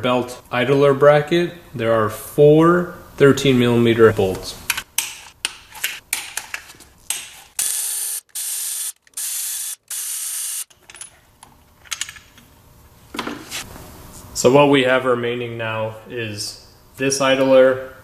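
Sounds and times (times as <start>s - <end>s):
power ratchet bursts: 7.6s - 10.7s.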